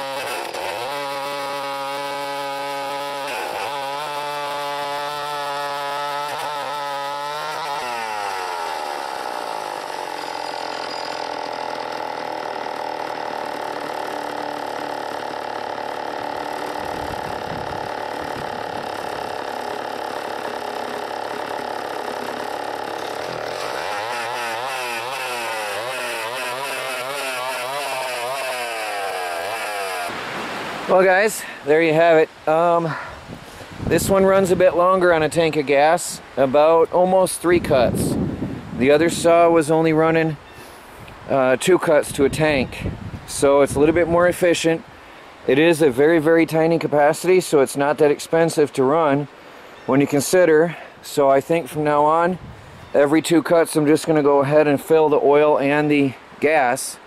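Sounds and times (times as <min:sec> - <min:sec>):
chainsaw cutting through log: 0:00.0 - 0:31.4.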